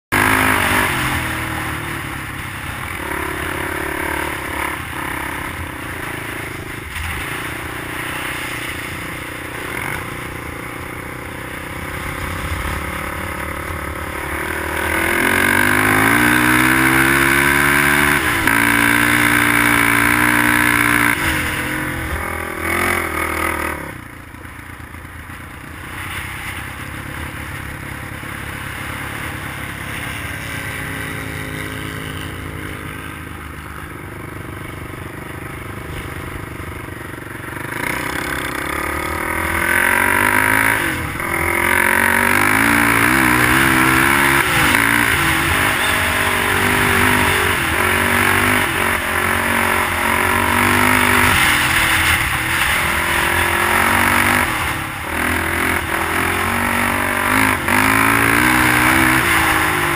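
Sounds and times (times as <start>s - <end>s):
dirt bike engine revving: 0.1s - 59.9s.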